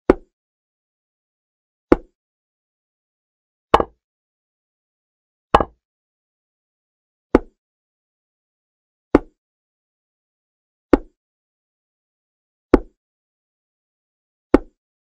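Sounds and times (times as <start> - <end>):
wooden chess piece clacks: 1.9 - 2.2, 3.8 - 4.0, 5.6 - 5.8, 9.2 - 9.4.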